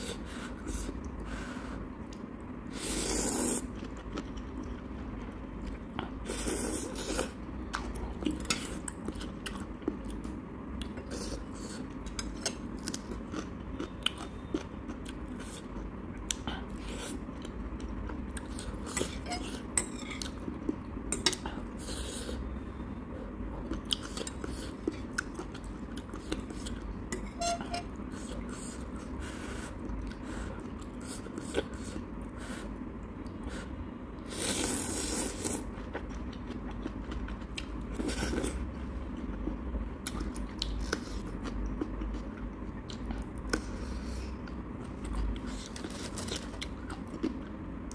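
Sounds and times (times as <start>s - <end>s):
slurping noodles: 2.7s - 3.7s.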